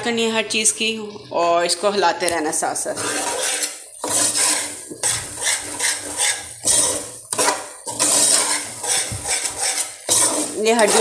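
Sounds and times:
metal spoon scraping a pot: 2.6s - 11.0s.

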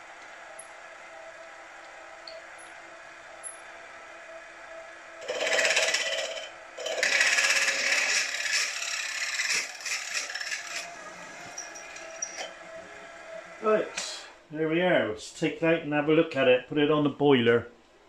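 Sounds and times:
milling spindle humming: 0.0s - 14.5s
drill scraping into metal: 5.2s - 12.6s.

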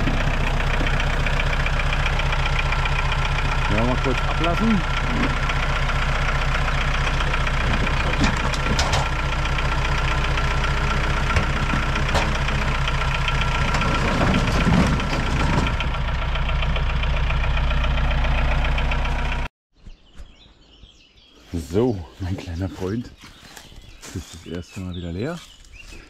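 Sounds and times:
logs clattering and sliding off: 0.0s - 3.4s, 6.8s - 16.0s
transporter engine running: 0.0s - 19.5s.

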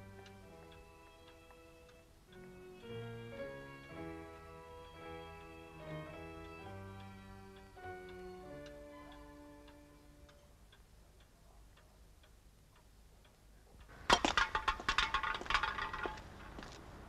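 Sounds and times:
clock ticking faintly: 0.0s - 16.3s
metal can clattering on pavement: 14.0s - 16.6s.

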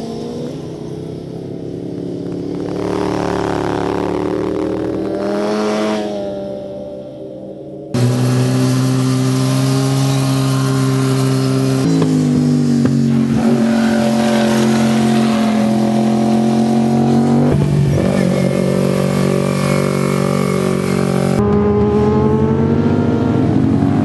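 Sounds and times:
sport motorcycle engines: 0.0s - 24.0s.

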